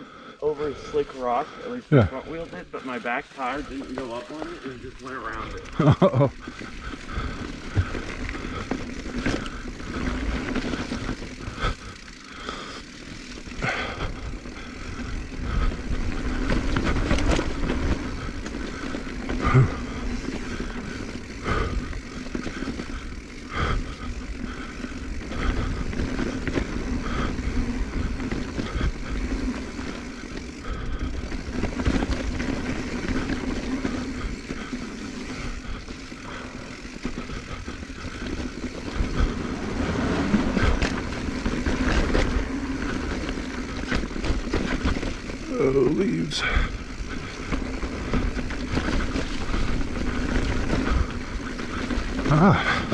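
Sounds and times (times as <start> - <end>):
bike knocking and rattling: 2.0 - 52.9
tyres rolling over dirt and rock: 3.4 - 12.6, 13.3 - 23.4, 25.0 - 52.9.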